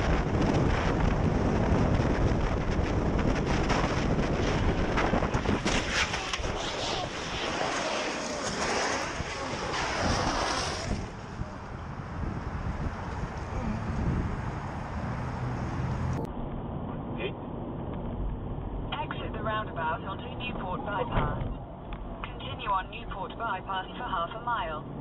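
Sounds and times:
wind buffeting microphone: 0.0s - 16.3s
motorcycle crash: 2.0s - 11.4s
motorcycle scraping along asphalt: 3.3s - 11.4s.

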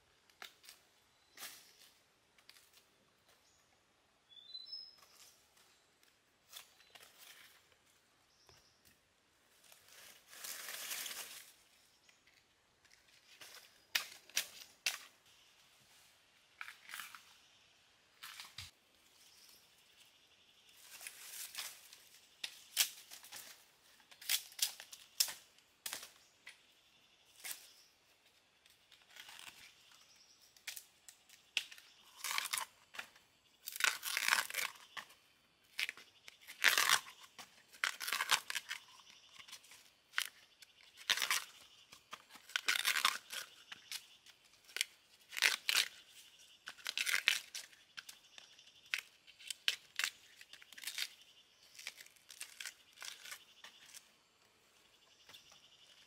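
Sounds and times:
husks tearing and crackling: 28.9s - 30.0s, 31.6s - 32.8s, 33.6s - 35.1s, 35.7s - 48.2s, 48.8s - 54.0s.

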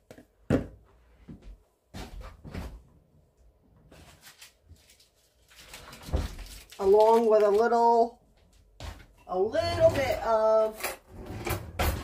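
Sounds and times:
kitchen items knocking and clunking: 0.0s - 0.8s, 8.8s - 12.0s.

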